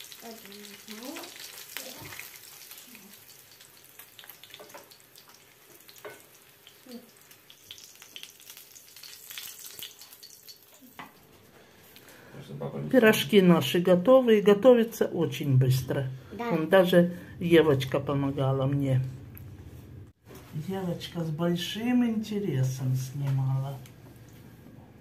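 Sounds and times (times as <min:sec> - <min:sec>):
rolls sizzling in frying oil: 0:00.0 - 0:12.0.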